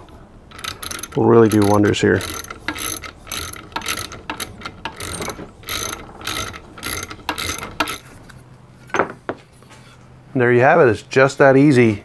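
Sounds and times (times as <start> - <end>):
wrench clicking: 0.0 - 8.1.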